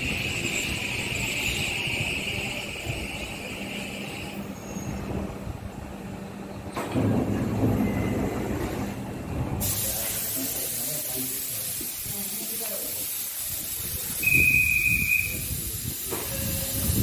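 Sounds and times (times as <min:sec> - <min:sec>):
electric train humming: 0:00.0 - 0:09.6
train doors opening pneumatic rumble: 0:00.0 - 0:17.0
hiss of released air: 0:09.6 - 0:17.0.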